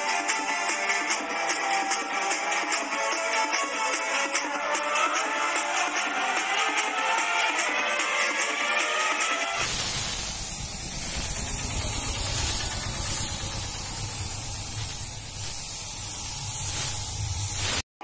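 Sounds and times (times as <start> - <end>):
paint spray gun hissing: 9.5 - 17.9.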